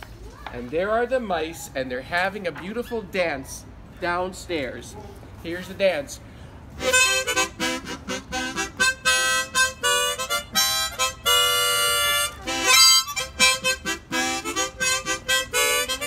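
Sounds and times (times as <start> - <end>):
harmonica playing: 6.7 - 16.0.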